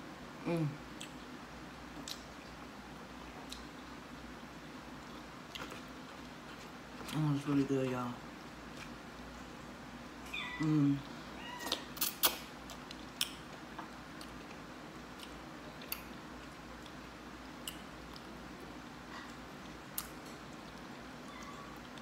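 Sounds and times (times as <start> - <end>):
cat meowing: 10.3 - 10.8, 11.4 - 11.9.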